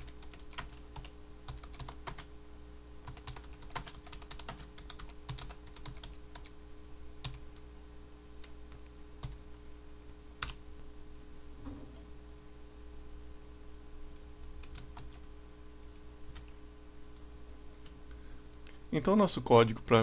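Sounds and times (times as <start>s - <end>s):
typing on computer keyboard: 0.0s - 2.3s, 3.0s - 6.5s.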